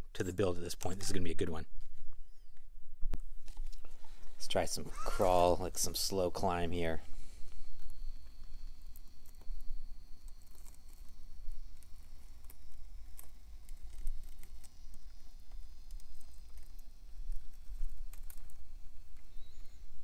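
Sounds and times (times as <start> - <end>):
high motor whine: 4.1 - 20.0
tyres clicking and crunching on grit: 7.7 - 19.7.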